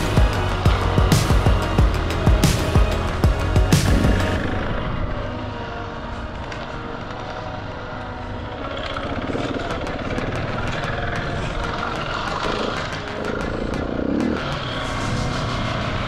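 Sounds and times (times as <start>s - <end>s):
motorcycle engine running: 0.0s - 5.2s
gravel ticking: 6.4s - 16.0s.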